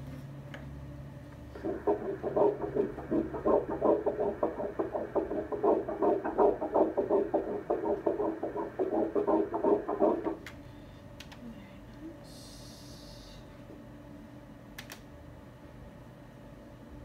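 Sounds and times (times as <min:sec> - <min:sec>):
doppler heartbeat pulses: 0:01.6 - 0:10.5.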